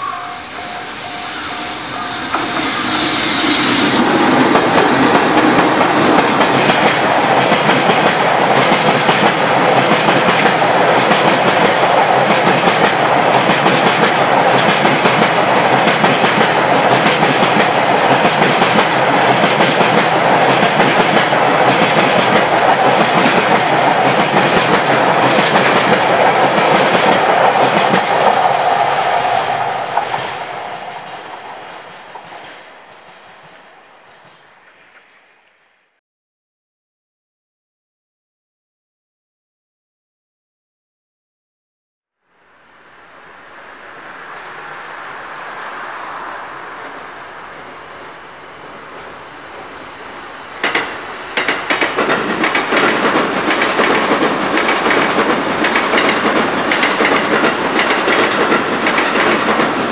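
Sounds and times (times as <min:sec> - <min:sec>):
level crossing warning bell: 0:00.0 - 0:03.2
train wheels clattering over rails: 0:00.6 - 0:35.1, 0:50.5 - 0:59.9.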